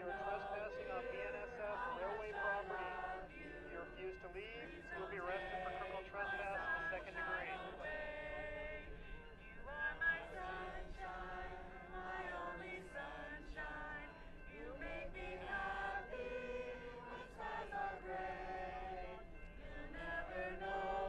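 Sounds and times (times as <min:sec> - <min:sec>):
group of people singing: 0:00.0 - 0:21.0.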